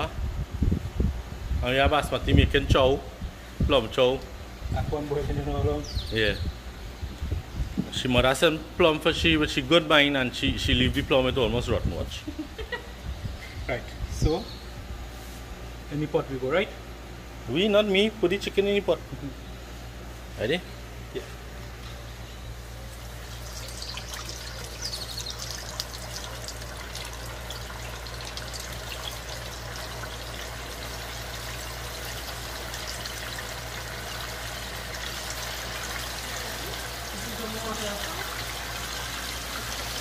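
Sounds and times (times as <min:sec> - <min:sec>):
chicken deep-frying in oil: 0:22.8 - 0:40.0.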